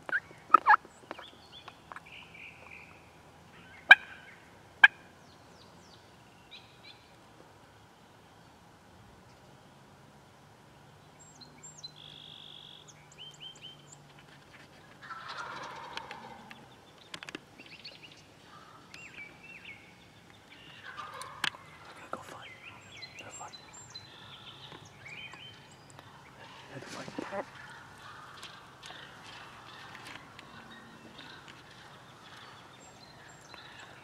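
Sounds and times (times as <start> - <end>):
turkey gobbling: 0.1 - 0.8, 3.9 - 4.2, 15.0 - 16.5, 20.6 - 22.0, 26.0 - 32.6.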